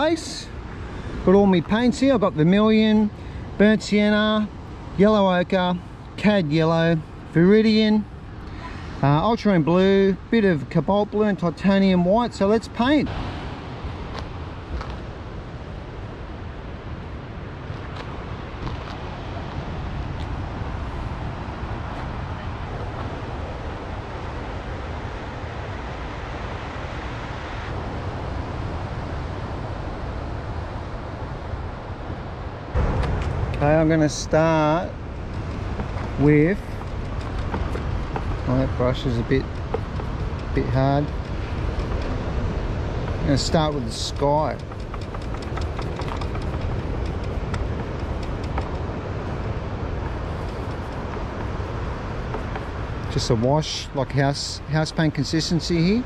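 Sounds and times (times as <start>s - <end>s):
wind buffeting microphone: 11.4s - 56.0s
surf breaking on beach: 32.7s - 56.0s.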